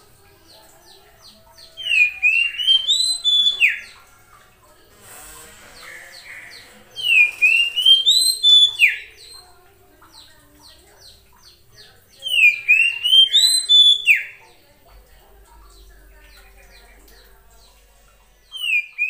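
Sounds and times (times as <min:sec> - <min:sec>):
soft bird chirps: 0:00.4 - 0:04.1, 0:05.1 - 0:14.6, 0:15.6 - 0:19.0
bird whistled song: 0:01.6 - 0:04.0, 0:05.8 - 0:09.4, 0:12.2 - 0:14.4, 0:18.5 - 0:19.0.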